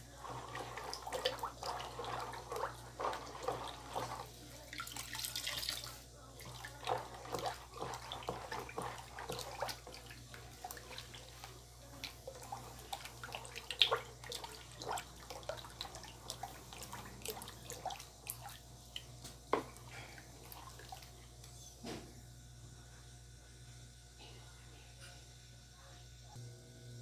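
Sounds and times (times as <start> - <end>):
ladle scraping plastic basin: 0.0 - 5.2, 6.4 - 11.5, 12.2 - 18.4
ladle stirring thick mixture: 0.0 - 21.4.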